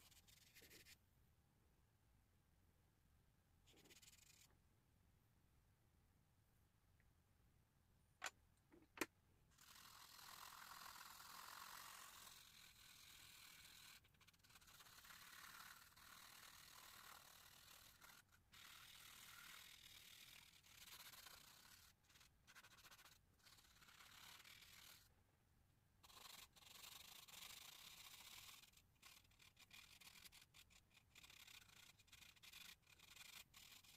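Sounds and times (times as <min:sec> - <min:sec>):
charcoal pencil scratching on paper: 0:00.0 - 0:01.0, 0:03.7 - 0:04.6, 0:09.6 - 0:25.1, 0:26.0 - 0:33.9.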